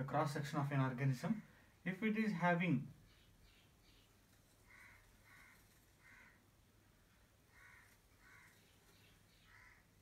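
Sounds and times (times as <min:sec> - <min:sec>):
faint crow cawing: 0:01.2 - 0:01.8, 0:03.1 - 0:10.0.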